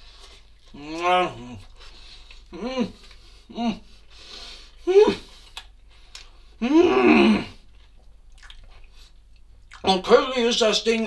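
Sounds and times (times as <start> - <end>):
man groaning: 0.8 - 1.7, 2.5 - 3.8, 4.9 - 5.2, 6.6 - 7.6
man humming: 0.8 - 1.7, 2.5 - 3.9, 4.8 - 5.3, 6.6 - 7.6.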